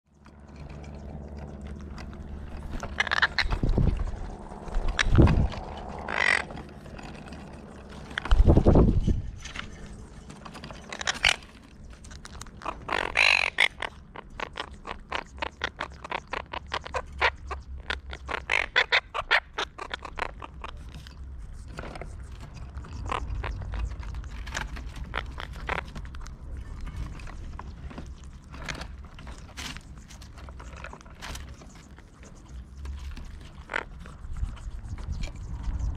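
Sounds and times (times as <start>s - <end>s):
beaks clicking and tapping: 0.1s - 8.7s, 9.5s - 35.9s
harsh parakeet call: 2.6s - 8.5s, 10.2s - 11.8s, 12.6s - 20.7s.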